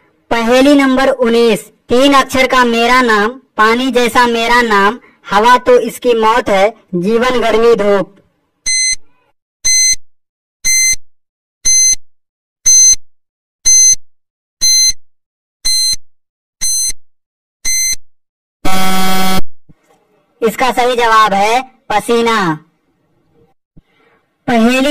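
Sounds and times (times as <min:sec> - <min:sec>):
low buzzer: 0:08.7 - 0:09.0, 0:11.7 - 0:12.0, 0:15.7 - 0:16.0, 0:16.6 - 0:17.0, 0:17.7 - 0:18.0, 0:18.6 - 0:19.5
short high beeps: 0:08.7 - 0:10.0, 0:10.6 - 0:11.0, 0:11.6 - 0:12.0, 0:12.7 - 0:13.0, 0:13.7 - 0:14.0, 0:14.6 - 0:15.0, 0:15.6 - 0:16.0, 0:16.6 - 0:17.0, 0:17.6 - 0:18.0.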